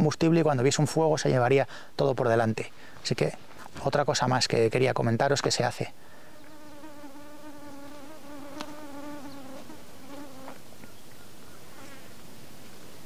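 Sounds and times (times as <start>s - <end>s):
faint steady hiss: 0.0s - 13.0s
flying insect buzzing: 6.2s - 10.8s, 11.7s - 12.2s.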